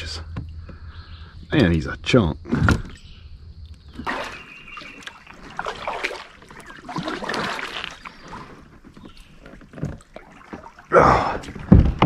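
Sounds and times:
water dripping off paddle: 3.9 - 11.6
paddle splashing in water: 3.9 - 12.0.

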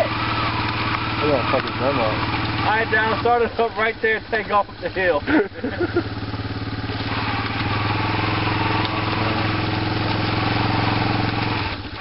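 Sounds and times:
small engine running: 0.0 - 12.0.

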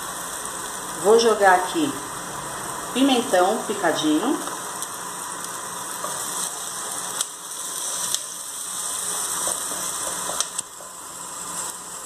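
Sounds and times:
vegetables sizzling in a pot: 0.0 - 12.0
wooden spoon stirring: 7.7 - 11.0.

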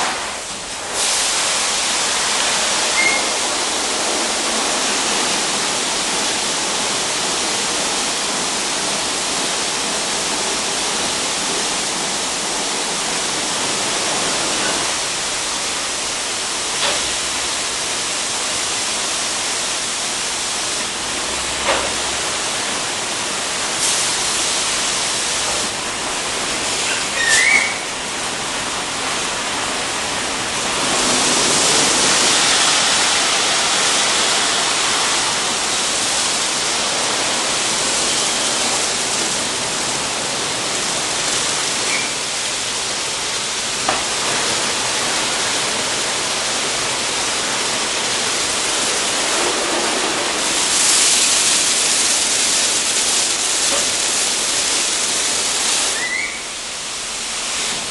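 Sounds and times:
water spray hissing: 0.0 - 57.9
brief squeak: 2.9 - 3.4, 26.8 - 27.9, 41.9 - 42.2, 55.9 - 56.5.

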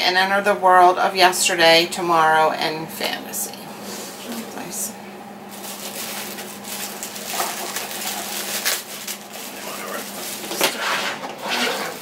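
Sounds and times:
wrapping paper crinkling and tearing: 5.5 - 10.7.

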